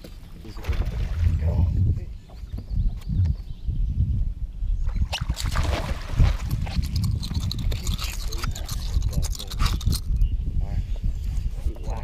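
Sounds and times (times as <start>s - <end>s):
fish splashing in water: 5.2s - 6.8s.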